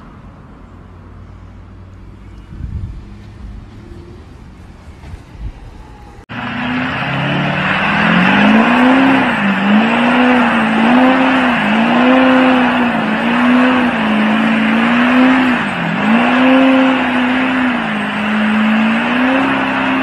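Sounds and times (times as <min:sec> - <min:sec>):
diesel engine revving: 0:06.2 - 0:20.0.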